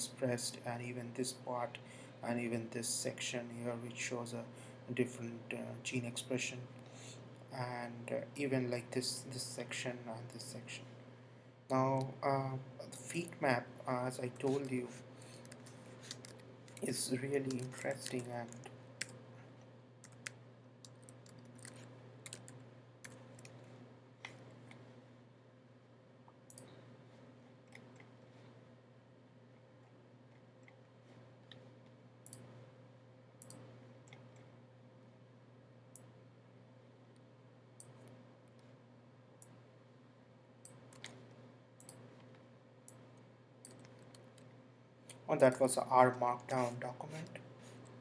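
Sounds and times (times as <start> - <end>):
steady low hum: 0.0 - 48.0
computer mouse clicks: 15.3 - 19.2, 20.0 - 23.6, 26.5 - 26.8, 32.2 - 32.5, 33.4 - 34.5, 40.6 - 43.0, 43.6 - 44.5.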